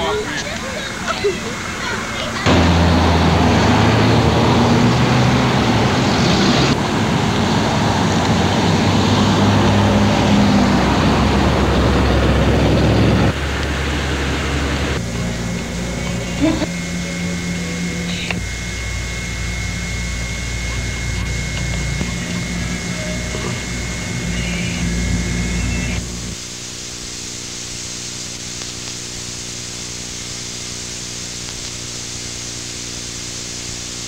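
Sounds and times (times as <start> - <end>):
low hum: 0.0 - 26.5
thin high tone: 15.0 - 26.4.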